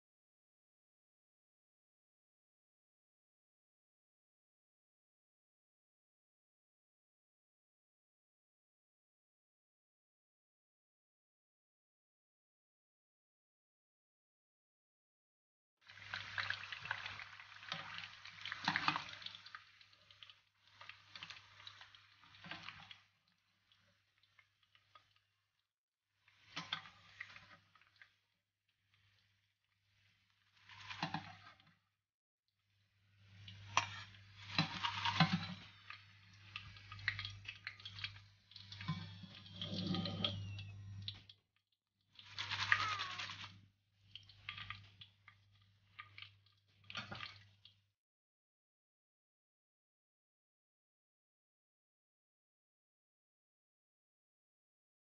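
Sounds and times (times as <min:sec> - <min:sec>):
fries sizzling in oil: 0:15.8 - 0:25.4, 0:26.2 - 0:31.7, 0:32.9 - 0:41.2, 0:42.2 - 0:47.6
fries tossed in metal colander: 0:16.0 - 0:19.6, 0:33.7 - 0:35.7, 0:42.2 - 0:43.5
utensil scraping pan: 0:33.6 - 0:35.8, 0:38.8 - 0:41.1.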